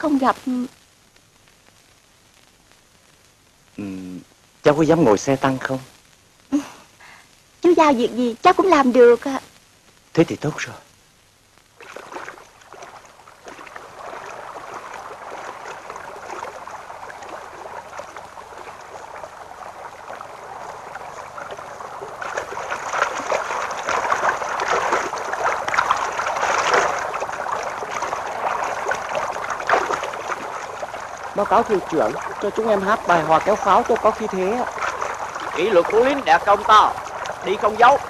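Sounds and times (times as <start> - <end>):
rushing splashing water: 11.8 - 38.0.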